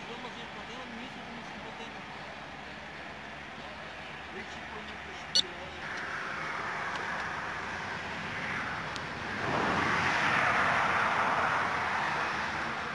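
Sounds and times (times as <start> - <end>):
car passing close by: 6.0 - 12.9.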